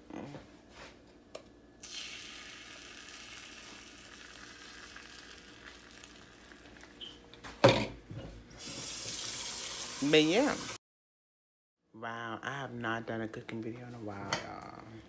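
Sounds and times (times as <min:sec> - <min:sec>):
food sizzling in frying pan: 0:01.8 - 0:07.0, 0:08.6 - 0:10.8.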